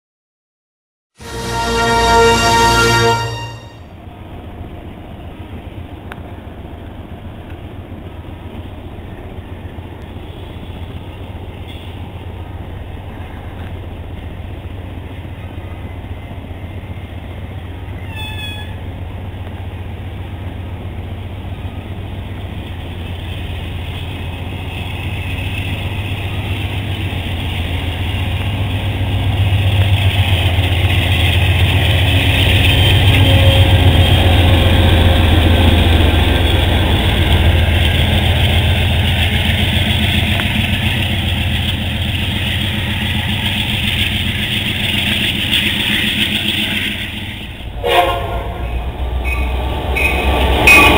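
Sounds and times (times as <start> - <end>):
diesel locomotive engine drone: 1.2 - 50.9
brief falling squeal: 18.0 - 18.8, 48.7 - 50.9.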